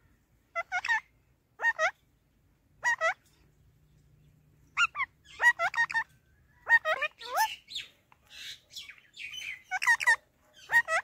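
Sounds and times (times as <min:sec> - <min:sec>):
parakeet calling: 0:00.5 - 0:02.0, 0:02.8 - 0:03.2, 0:04.7 - 0:11.0.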